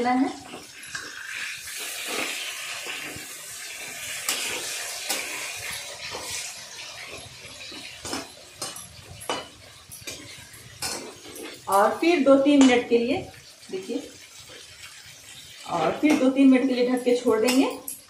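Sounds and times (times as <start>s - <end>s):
chicken sizzling in hot oil: 0.0s - 18.0s
spatula clinking against metal pan: 5.6s - 11.9s, 17.2s - 18.0s.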